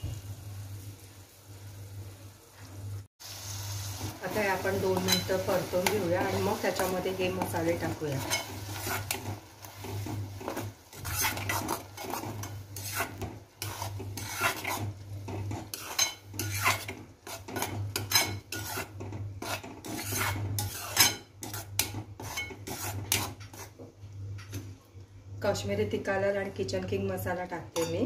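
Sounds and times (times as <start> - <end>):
spoon scraping a pan: 4.3 - 23.8.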